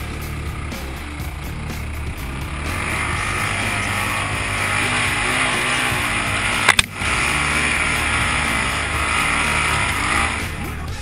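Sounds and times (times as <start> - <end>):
off-road vehicle engine running: 0.0 - 11.0
sharp crack of brush: 2.8 - 10.4.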